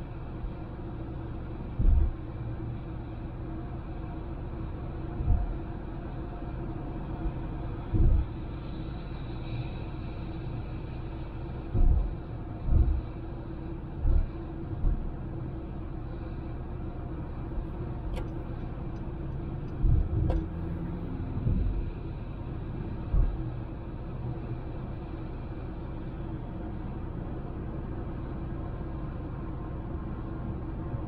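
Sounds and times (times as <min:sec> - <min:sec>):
car road and engine noise: 0:00.0 - 0:31.0
low thumps: 0:11.7 - 0:13.1.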